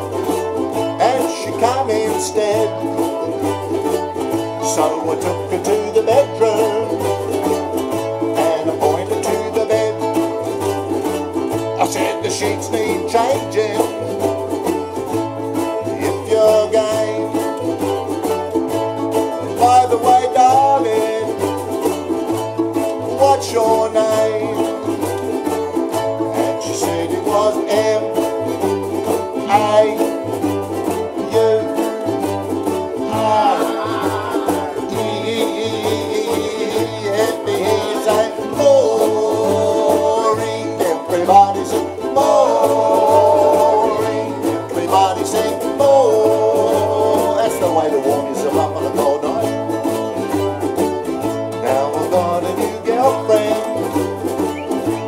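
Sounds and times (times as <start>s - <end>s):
ukuleles strumming: 0.0s - 55.0s
repeating bass line: 32.5s - 47.4s.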